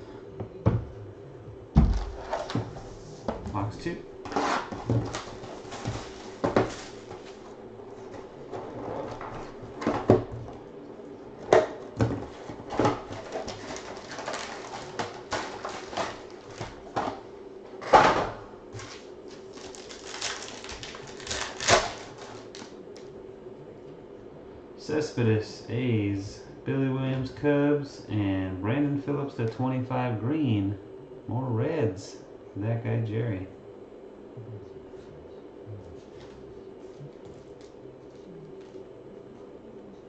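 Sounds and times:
faint steady hum: 0.0s - 40.0s
foil card packs crinkling: 4.3s - 7.4s, 12.9s - 17.0s, 18.8s - 22.8s.

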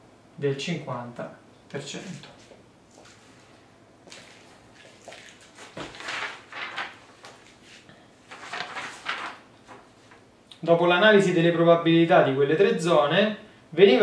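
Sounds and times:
paper rustling: 2.0s - 10.2s.

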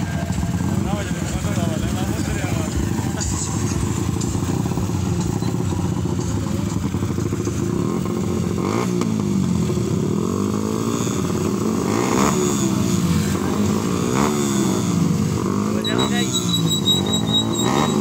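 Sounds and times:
motorcycle engines revving: 0.0s - 18.0s.

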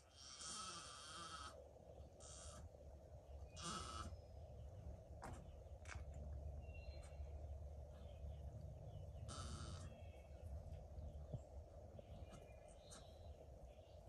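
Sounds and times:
steady low hum: 0.0s - 14.0s
short animal call: 9.3s - 9.9s.

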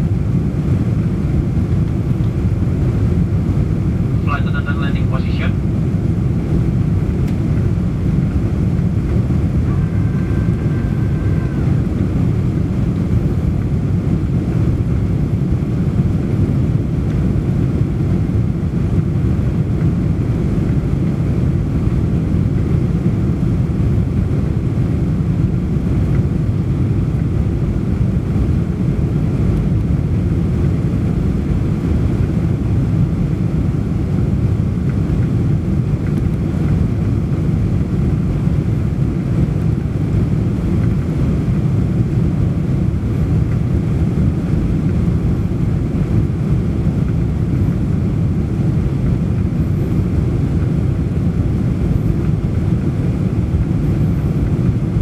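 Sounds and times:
airliner cabin engine rumble: 0.0s - 55.0s
faint brief tone: 9.6s - 11.8s.

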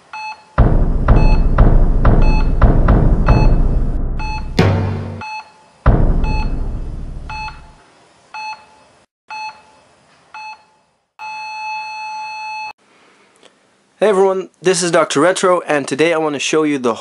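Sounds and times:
heart monitor beeps: 0.1s - 3.6s, 4.2s - 4.6s, 6.2s - 6.6s, 7.3s - 7.7s
heavy thuds: 0.6s - 5.2s, 5.9s - 7.8s
low rumble: 0.6s - 5.2s, 5.9s - 7.7s
long steady electronic tone: 6.2s - 7.7s.

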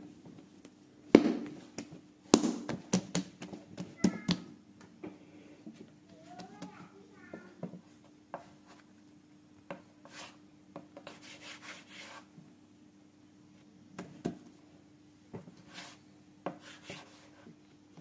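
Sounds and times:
hands kneading dough: 0.0s - 4.5s.

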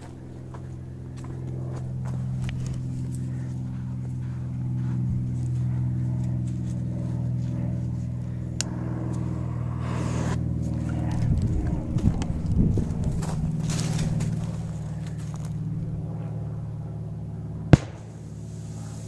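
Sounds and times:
footsteps on sand: 0.0s - 6.5s
low engine hum: 0.0s - 19.0s.

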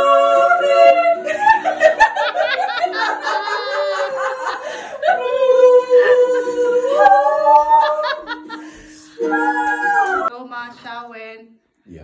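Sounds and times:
laughter: 1.2s - 6.2s, 6.9s - 9.3s
ukulele: 8.4s - 10.3s.

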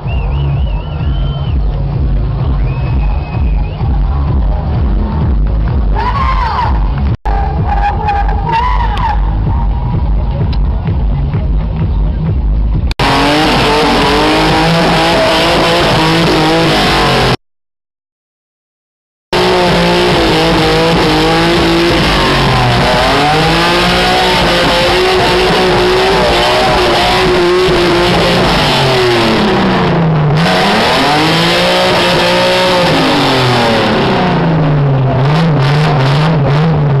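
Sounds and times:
car engine revving high: 12.7s - 17.4s, 19.3s - 37.0s.

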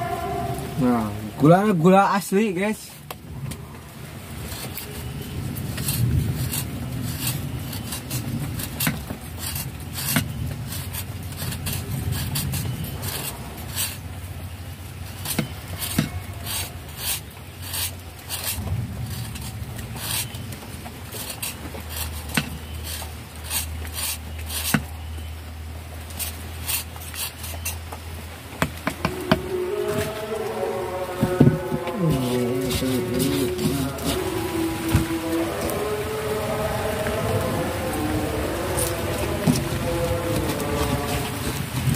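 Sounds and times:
knife scraping sugar block: 4.4s - 14.1s, 15.1s - 25.2s, 26.0s - 28.0s, 31.2s - 35.2s.

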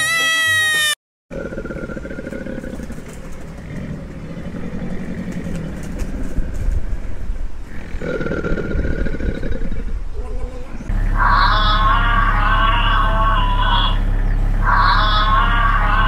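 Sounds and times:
crocodile growling: 1.3s - 10.1s, 11.0s - 16.0s
sheep bleating: 11.2s - 14.0s, 14.6s - 16.0s.

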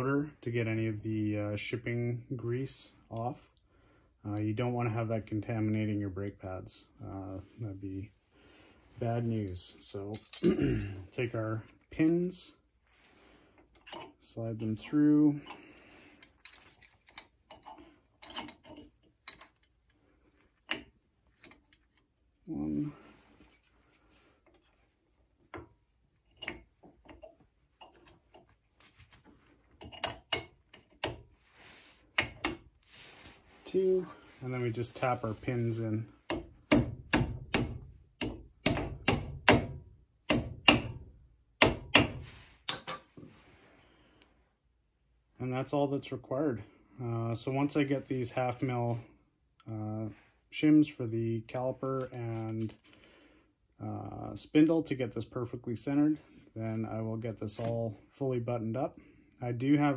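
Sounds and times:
hammer tapping metal pins: 36.3s - 41.0s, 41.6s - 43.1s.

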